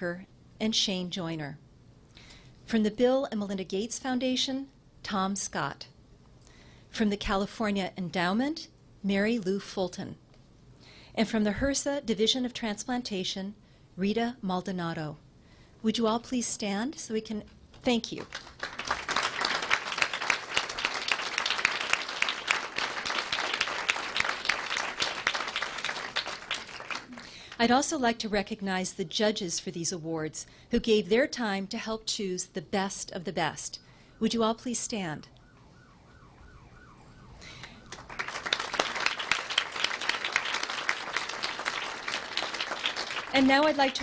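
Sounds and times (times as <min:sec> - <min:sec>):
audience applauding: 0:18.3 - 0:27.5, 0:37.7 - 0:44.0
faint wavering siren: 0:33.6 - 0:38.5.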